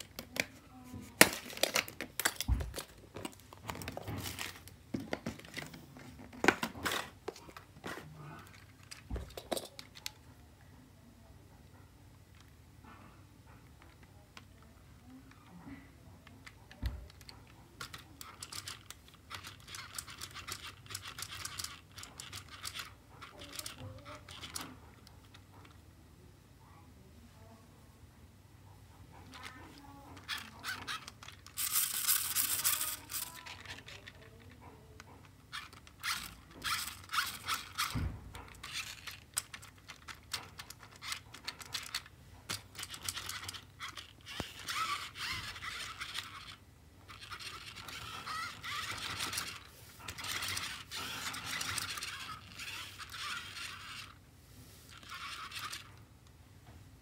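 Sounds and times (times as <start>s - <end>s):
plastic toy truck handled: 0.0s - 10.2s, 16.2s - 25.8s, 30.2s - 54.2s.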